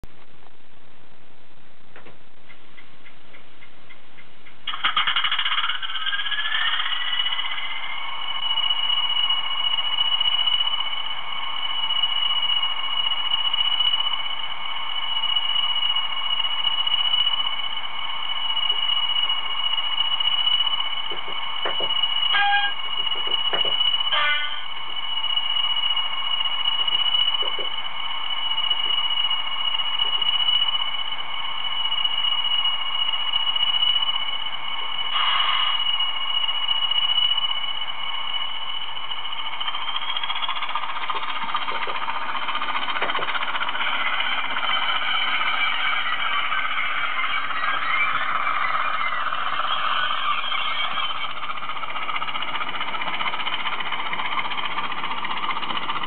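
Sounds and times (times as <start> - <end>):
model diesel engine sounds: 2.4 - 56.0
engine cranking clicks: 2.5 - 6.8.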